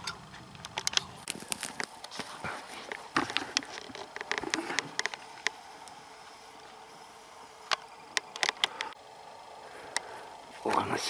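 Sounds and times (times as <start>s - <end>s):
twigs crackling and snapping: 0.0s - 9.0s
footsteps on forest floor: 1.2s - 5.6s.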